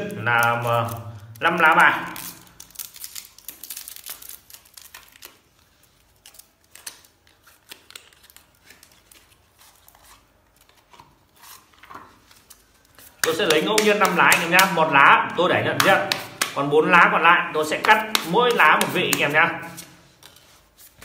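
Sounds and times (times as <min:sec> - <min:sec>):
plastic wrapper crinkling and tearing: 0:00.0 - 0:21.0
clicks of cards and cardboard: 0:11.8 - 0:14.8, 0:15.7 - 0:16.7, 0:17.6 - 0:21.0.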